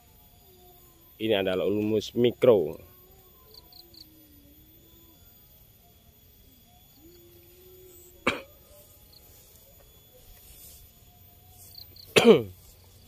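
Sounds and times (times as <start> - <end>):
person coughing: 8.2 - 8.6, 12.1 - 12.6.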